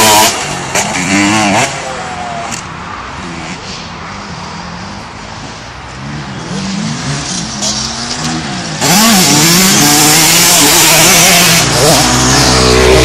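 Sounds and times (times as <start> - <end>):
dirt bike engine revving: 0.0 - 2.3, 6.0 - 13.0.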